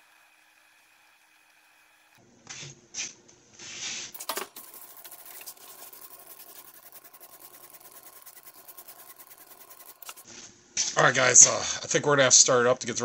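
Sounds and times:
faint fast ticking: 0:04.6 - 0:10.2.

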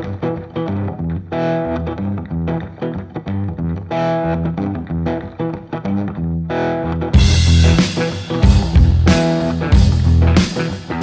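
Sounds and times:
plucked melody over bass: 0:07.1 - 0:10.5.

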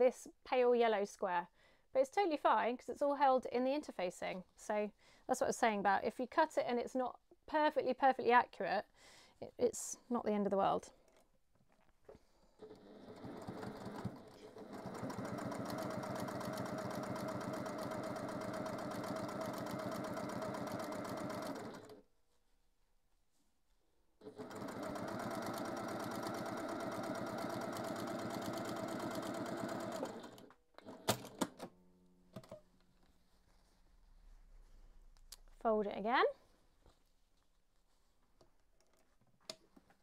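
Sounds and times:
sewing machine stitching: 0:12.6 - 0:22.0, 0:24.2 - 0:31.7.

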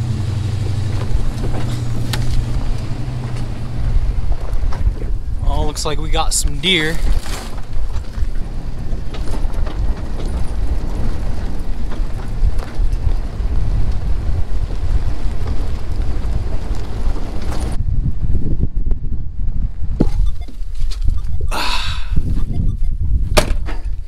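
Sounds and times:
vehicle cabin rumbling and rattling: 0:00.0 - 0:24.0
knocks and jolts: 0:06.8 - 0:13.0.

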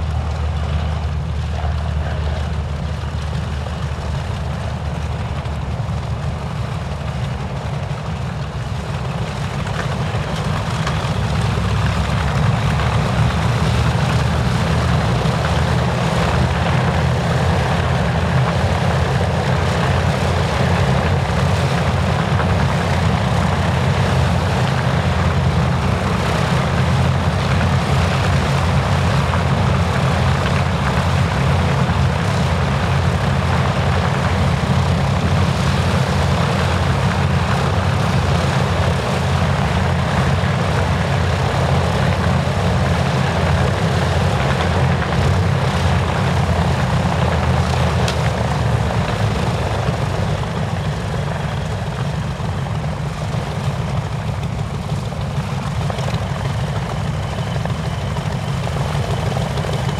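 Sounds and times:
aircraft engines idling: 0:00.0 - 0:59.9.

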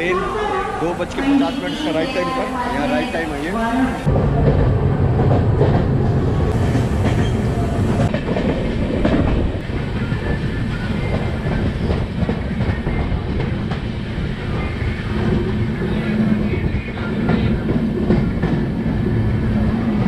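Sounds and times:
train rumble: 0:00.0 - 0:20.0
train wheels clattering over rails: 0:04.1 - 0:20.0.

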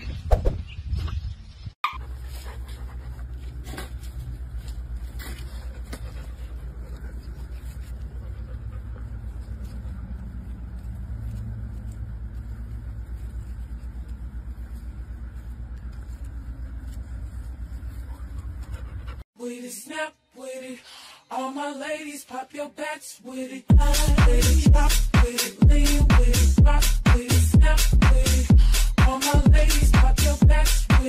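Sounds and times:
pulsing mechanical rumble: 0:02.0 - 0:19.2.

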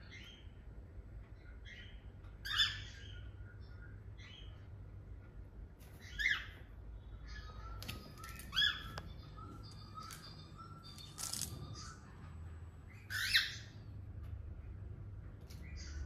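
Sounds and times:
soft whistles and chirps: 0:07.1 - 0:12.0
cockatiel chirps: 0:07.3 - 0:11.2, 0:13.0 - 0:13.7.

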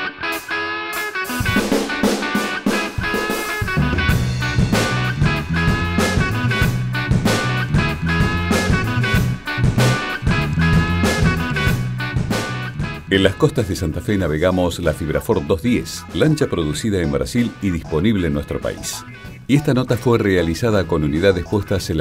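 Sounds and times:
band music with guitar: 0:00.0 - 0:22.0
bass part: 0:01.3 - 0:14.3.

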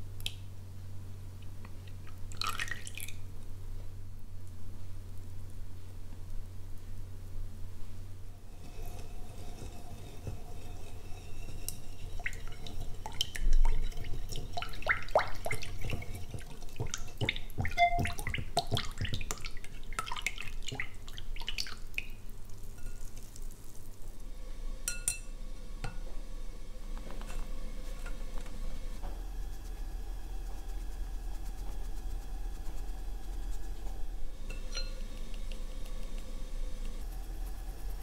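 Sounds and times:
whisk splashing in liquid: 0:08.5 - 0:23.7.

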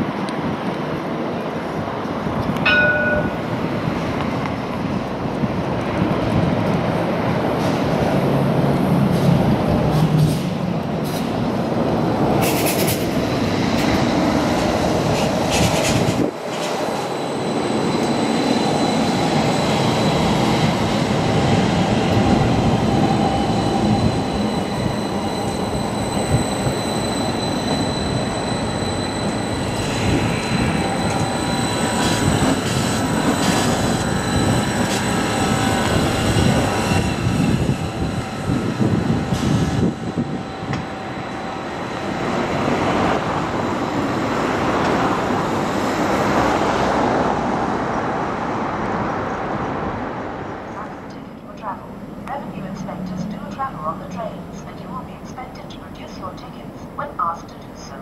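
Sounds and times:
tram rumbling past: 0:00.0 - 0:58.0
high-pitched tone: 0:50.9 - 0:58.0.

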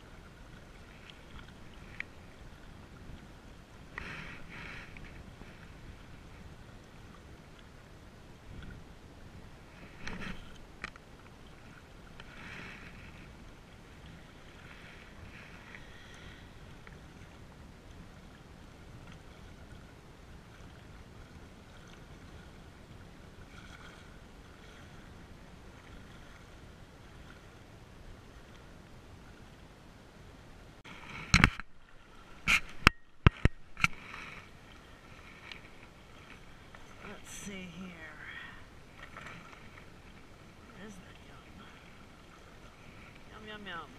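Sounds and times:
waves lapping on rocks: 0:00.0 - 0:29.6, 0:30.8 - 0:43.9
wind: 0:00.0 - 0:43.9
knocks and rustles of fishing gear: 0:09.9 - 0:11.0, 0:31.0 - 0:34.4.

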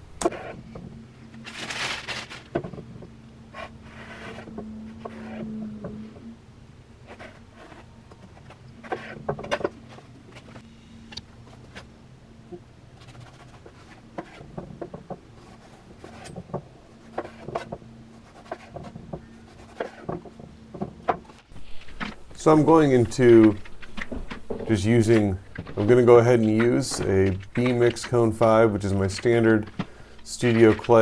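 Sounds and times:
low electrical hum: 0:00.0 - 0:31.0
objects handled on work surface: 0:18.5 - 0:31.0.

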